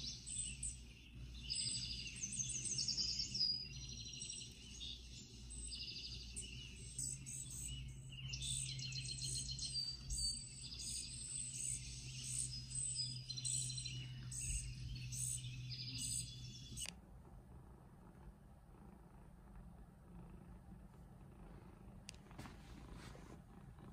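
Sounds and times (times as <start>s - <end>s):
recorded bird chirps from speaker: 0.0s - 16.9s
low steady hum: 0.0s - 23.9s.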